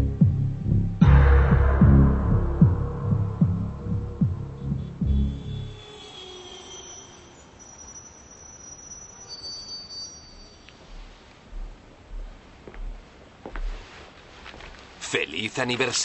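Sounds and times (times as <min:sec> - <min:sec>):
soft low pulses: 0:00.0 - 0:06.4
deep low swell: 0:00.0 - 0:08.3
thin high sustained tones: 0:01.0 - 0:11.0.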